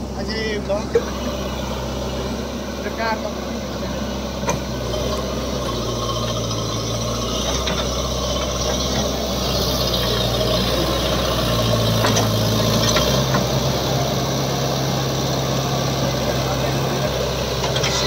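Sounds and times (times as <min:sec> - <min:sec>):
backhoe diesel engine under load: 0:00.0 - 0:18.0
backhoe arm digging dirt: 0:04.1 - 0:18.0.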